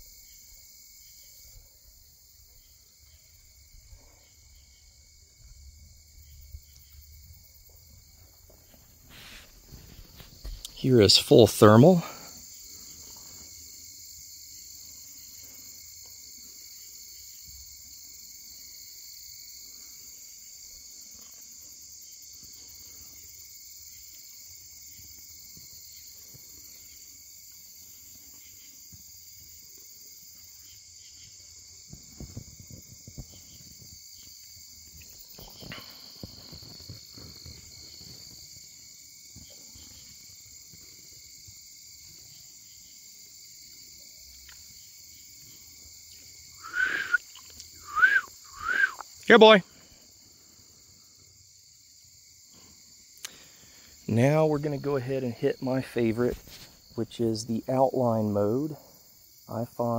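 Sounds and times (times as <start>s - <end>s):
crickets and insects trilling: 0.0s - 59.9s
soft bumps and rustles: 7.6s - 10.8s, 31.8s - 34.2s.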